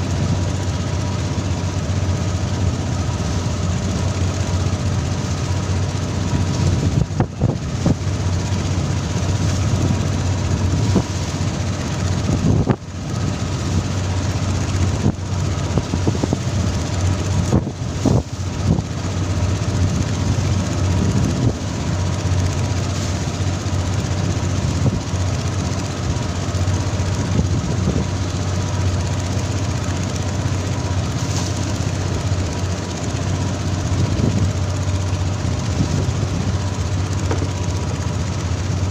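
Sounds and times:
boat engine droning: 0:00.0 - 0:38.9
water rushing along hull: 0:00.0 - 0:38.9.

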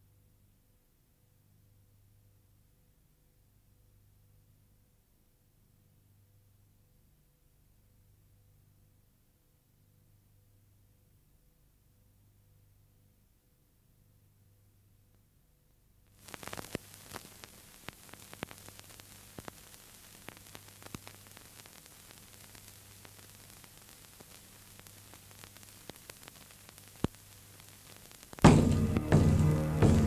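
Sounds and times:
static hiss with crackles: 0:00.0 - 0:30.0
loud music: 0:28.4 - 0:30.0
low hum: 0:28.4 - 0:30.0.

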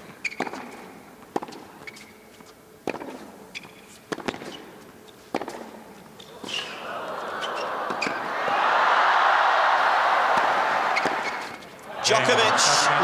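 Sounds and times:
tennis ball struck with rackets: 0:02.8 - 0:03.4, 0:04.1 - 0:04.7, 0:05.3 - 0:06.8, 0:10.3 - 0:11.6.

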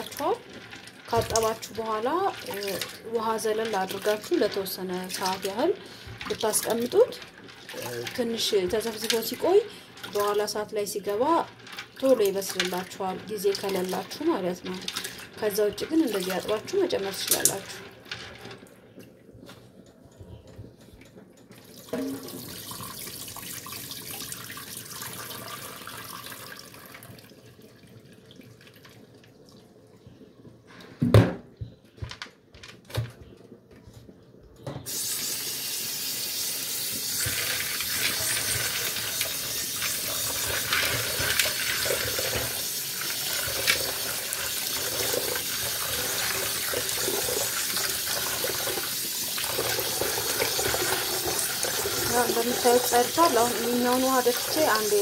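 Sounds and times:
hand swishing beans in water: 0:00.0 - 0:18.3, 0:49.4 - 0:55.0
tap running into a bowl: 0:21.5 - 0:23.0.

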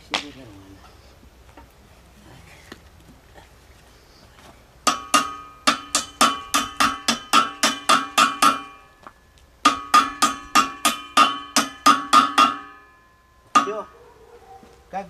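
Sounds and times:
hammer tapping on steel: 0:04.8 - 0:14.0.

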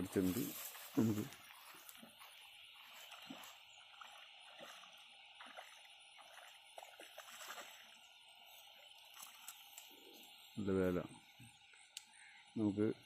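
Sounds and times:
steady high hiss: 0:08.3 - 0:13.0
soft ticks: 0:09.0 - 0:09.9, 0:11.7 - 0:12.2.

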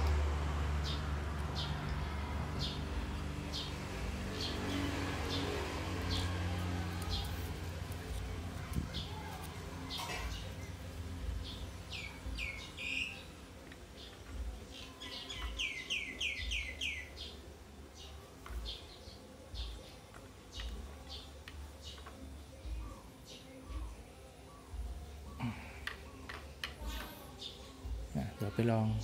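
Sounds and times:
small bird chirping: 0:00.8 - 0:29.0.

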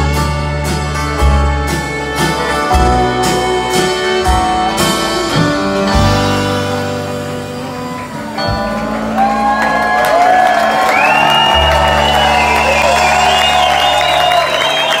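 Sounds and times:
live band holding a chord: 0:00.0 - 0:15.0
crowd cheering and whistling: 0:07.9 - 0:15.0.

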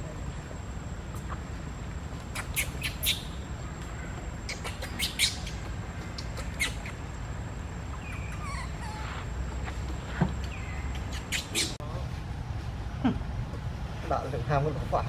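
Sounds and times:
baby monkey squeaking: 0:02.3 - 0:03.4, 0:04.4 - 0:07.1, 0:07.9 - 0:11.8.

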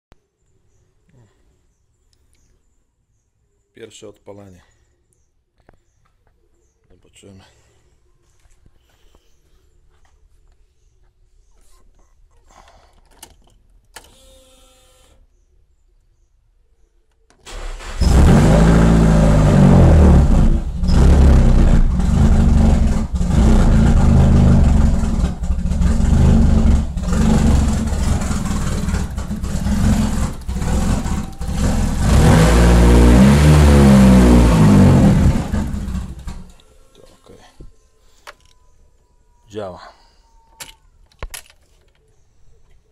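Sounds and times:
car engine starting and revving: 0:17.5 - 0:36.5.

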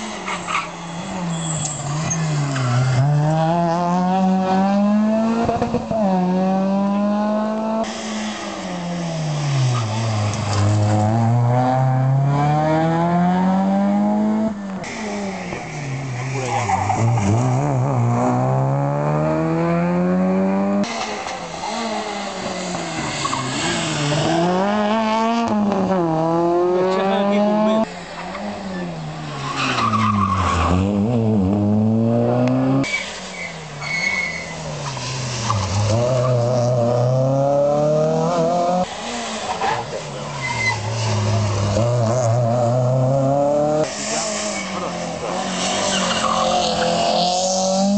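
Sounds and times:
rally car engines revving: 0:00.0 - 0:47.9
tyre squeal: 0:00.2 - 0:03.1, 0:32.8 - 0:36.5, 0:39.5 - 0:41.6.

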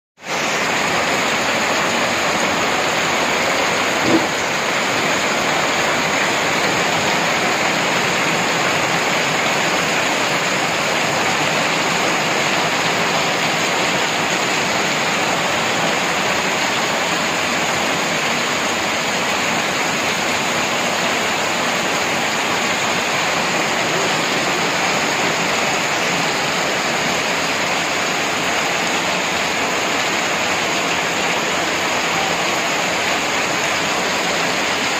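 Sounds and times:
heavy rain: 0:00.2 - 0:34.9
short knock: 0:04.0 - 0:04.4.

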